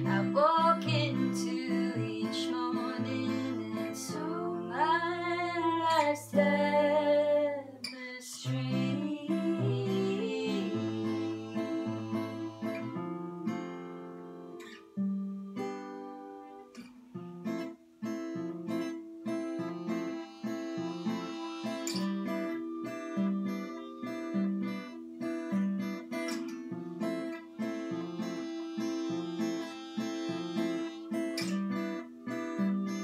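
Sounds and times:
woman singing: 0.0s - 15.8s
acoustic guitar strumming: 0.0s - 33.0s.

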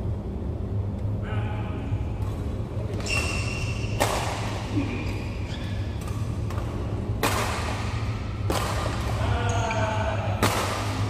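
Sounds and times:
steady low hum: 0.0s - 11.0s
racket hitting shuttlecock: 2.2s - 9.6s, 10.4s - 11.0s.

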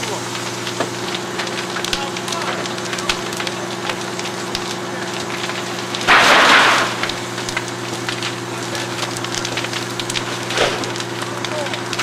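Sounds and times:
fire crackling and popping: 0.0s - 12.0s.

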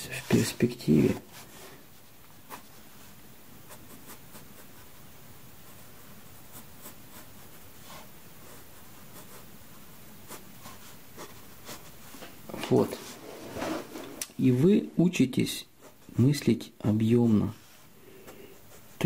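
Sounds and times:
soft steady hiss: 0.0s - 19.0s
pencil scratching on paper: 3.6s - 5.0s, 6.4s - 9.5s, 10.2s - 12.0s.

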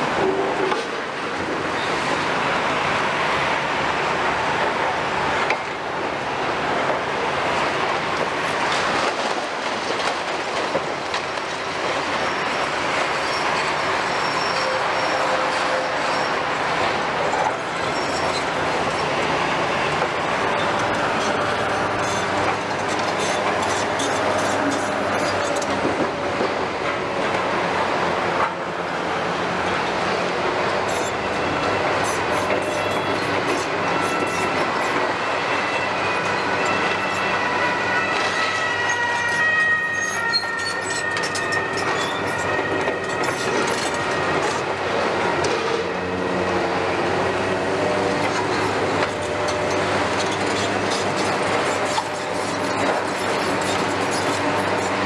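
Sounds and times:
excavator engine and hydraulics: 0.0s - 37.4s, 39.9s - 55.0s
thin metallic squeals: 13.2s - 16.4s, 17.8s - 19.1s, 35.7s - 44.4s.

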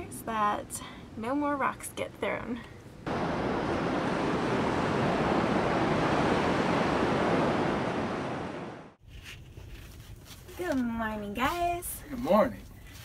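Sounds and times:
ocean surf breaking: 3.1s - 9.0s.

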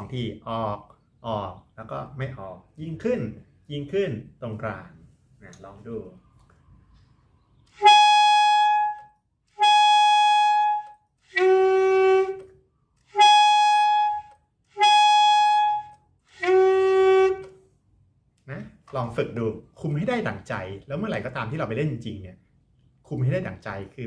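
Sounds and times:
saxophone playing held notes: 7.7s - 17.6s.

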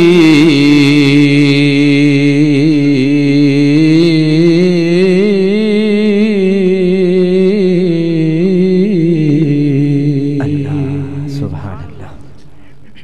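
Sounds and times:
man chanting into a microphone: 0.0s - 13.0s.

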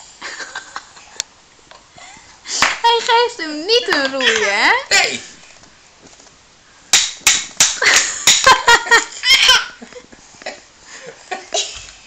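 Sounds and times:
child laughing: 7.9s - 10.1s.

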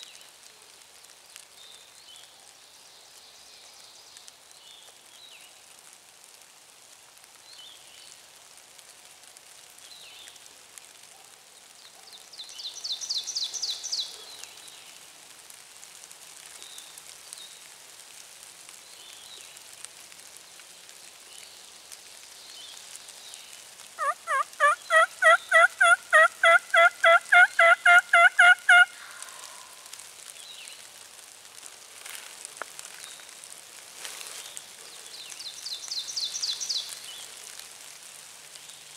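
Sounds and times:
turkey yelping: 24.0s - 29.7s.

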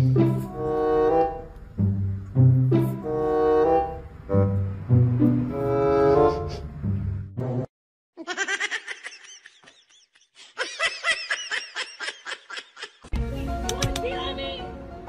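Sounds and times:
cello and double bass music: 0.0s - 7.7s, 13.2s - 15.0s
child laughing: 8.2s - 13.1s.

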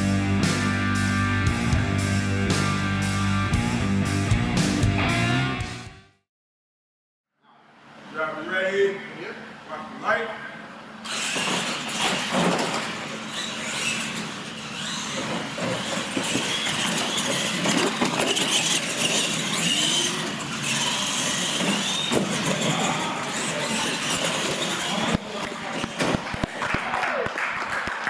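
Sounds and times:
electric motors whining: 11.0s - 26.2s
tyres rumbling on concrete: 11.3s - 26.6s.

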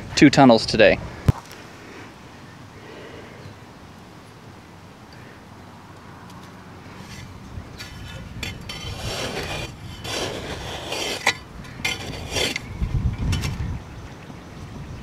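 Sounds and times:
trowel scraping sandy soil: 6.9s - 12.7s.

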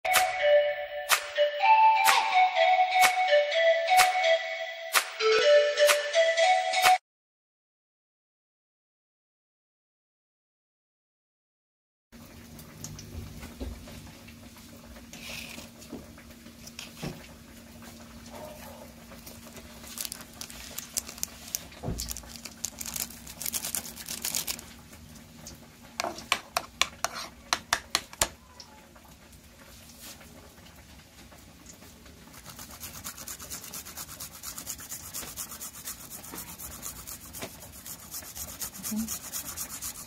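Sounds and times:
scratchy rustling: 19.8s - 24.6s, 32.3s - 40.0s
spoon and bowl handling noises: 19.8s - 24.6s.

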